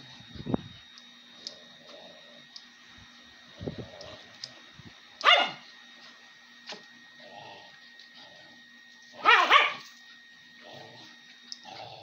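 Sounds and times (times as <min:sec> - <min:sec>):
dog barking: 0:05.2 - 0:05.6, 0:09.2 - 0:09.9.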